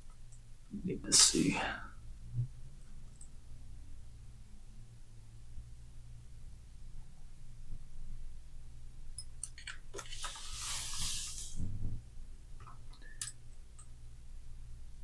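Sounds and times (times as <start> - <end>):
steady low hum: 0.0 - 9.5, 11.1 - 15.0
brief rustling hiss: 10.0 - 11.7.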